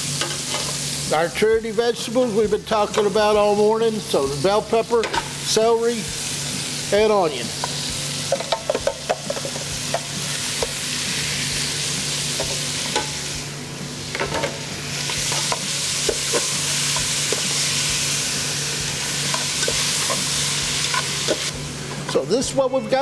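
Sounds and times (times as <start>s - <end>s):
vegetables sizzling in fat: 0.0s - 23.0s
metal tongs clinking against pot: 12.9s - 13.2s, 20.8s - 21.4s.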